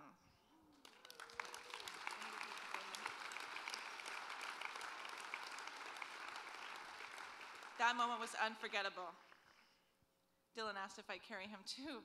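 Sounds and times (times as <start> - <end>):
audience applauding: 0.7 - 8.4.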